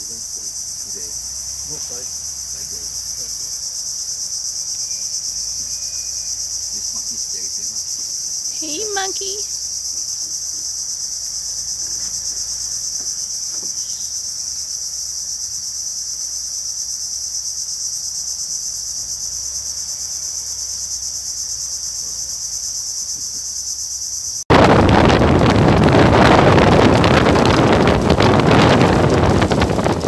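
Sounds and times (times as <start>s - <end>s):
insect chorus buzzing drone: 0.0s - 30.0s
wind on microphone: 24.5s - 30.0s.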